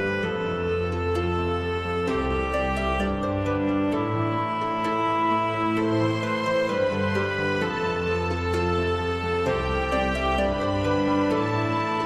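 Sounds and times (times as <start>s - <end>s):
instrumental music with held notes: 0.0s - 12.0s.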